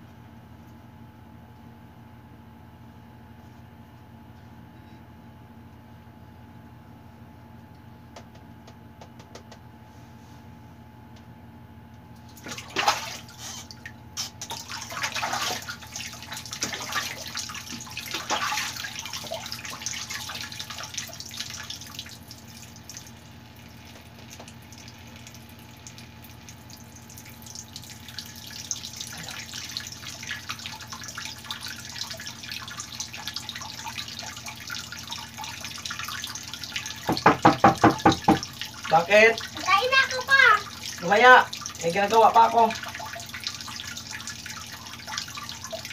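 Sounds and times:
tap water running into bucket: 0:12.2 - 0:45.9.

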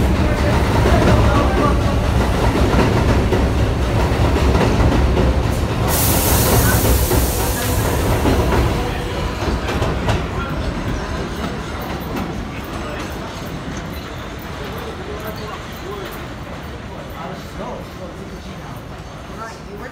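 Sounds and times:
train running on steel rails: 0:00.0 - 0:19.9
loud hiss of air: 0:05.6 - 0:09.4.

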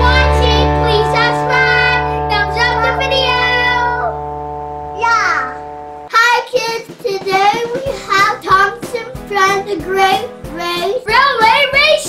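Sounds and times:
children singing: 0:00.0 - 0:03.9
child speaking: 0:00.0 - 0:04.2, 0:05.0 - 0:12.0
backing music: 0:00.0 - 0:12.0.

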